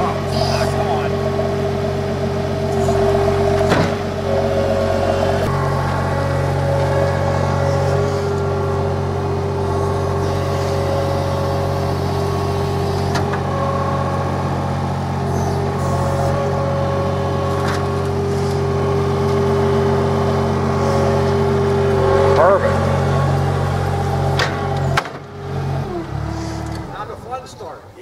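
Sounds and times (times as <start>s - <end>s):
hydraulic whining: 0.0s - 27.5s
loader engine running: 0.0s - 28.0s
sharp knocks: 3.6s - 4.1s.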